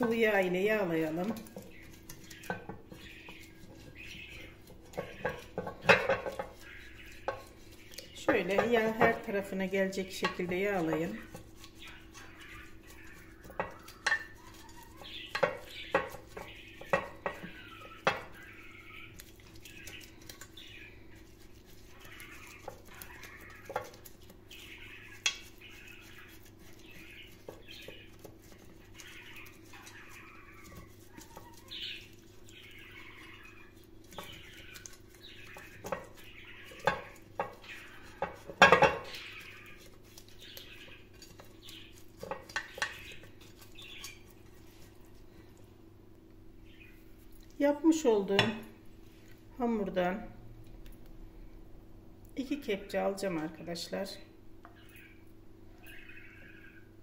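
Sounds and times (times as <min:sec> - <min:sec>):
brush tapping metal mold: 0:00.0 - 0:45.0
pastry brush wet brushing: 0:00.0 - 0:45.5.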